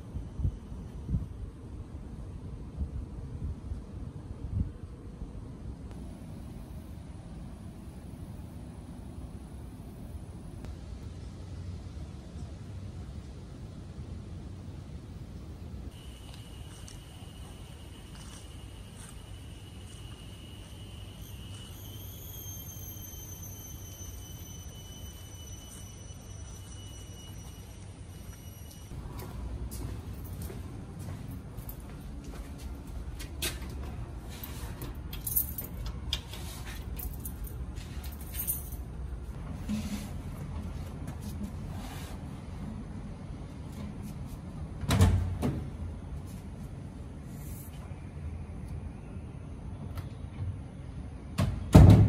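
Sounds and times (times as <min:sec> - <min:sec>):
steady low rumble: 0:00.0 - 0:21.5
high-pitched insect tone: 0:16.0 - 0:29.0.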